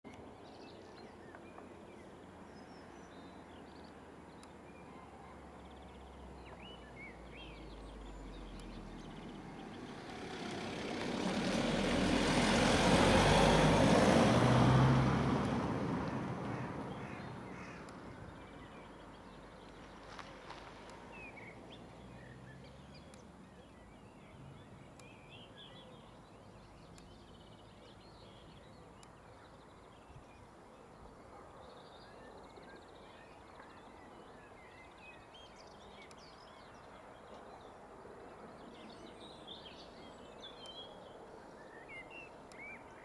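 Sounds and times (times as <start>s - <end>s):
small birds chirping: 0.1s - 11.7s, 16.1s - 43.0s
vehicle passing rumble: 5.4s - 28.5s.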